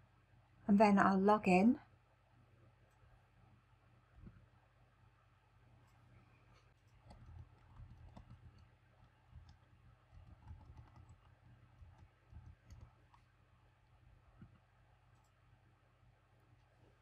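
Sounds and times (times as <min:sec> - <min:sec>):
typing on computer keyboard: 0:07.0 - 0:13.2.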